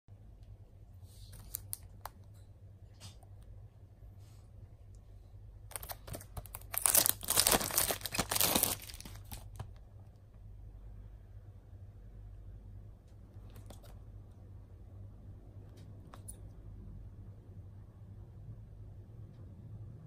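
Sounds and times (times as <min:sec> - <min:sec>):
plastic wrapping crinkling and tearing: 0:01.3 - 0:02.1, 0:05.7 - 0:09.8.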